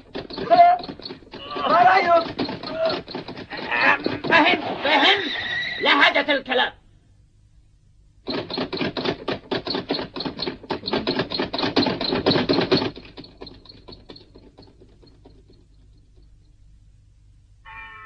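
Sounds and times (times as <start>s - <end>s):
rapid sharp clacks: 0.0s - 4.9s, 8.2s - 16.6s.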